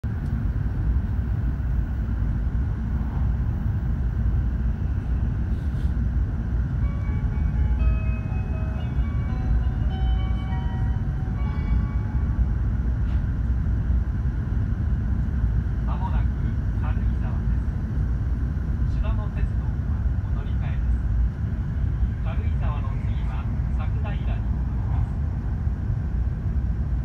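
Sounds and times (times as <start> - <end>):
train cabin rumble: 0.0 - 27.0
chime melody over speakers: 6.8 - 12.4.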